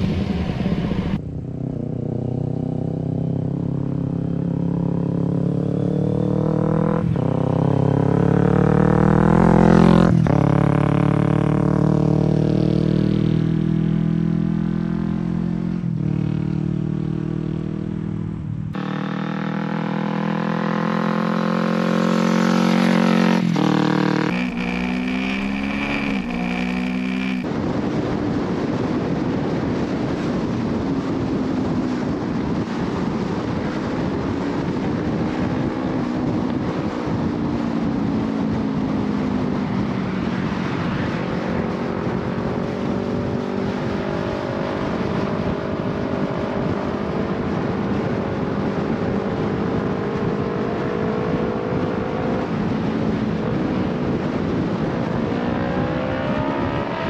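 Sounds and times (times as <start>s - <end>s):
engine drone: 0.0s - 14.0s, 17.9s - 27.5s
wind and road noise: 0.0s - 57.0s
motorcycle engine running: 14.7s - 40.2s.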